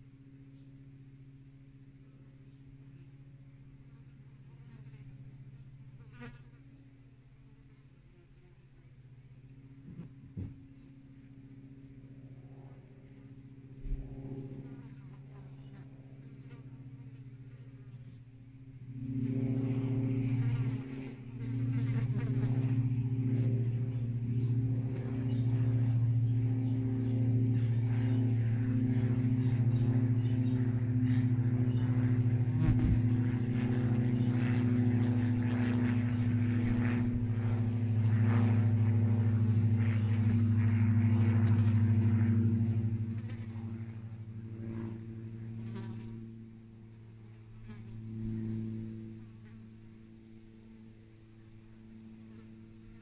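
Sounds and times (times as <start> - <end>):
flying insect buzzing: 3.9 - 8.7, 12.7 - 18.2, 18.9 - 50.0.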